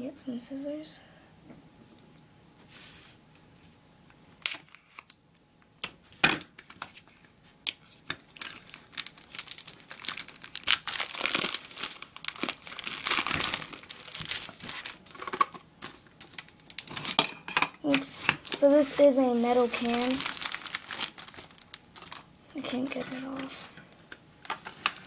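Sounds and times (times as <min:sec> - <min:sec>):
packaging crinkling and tearing: 0:04.4 - 0:05.2, 0:06.6 - 0:25.0.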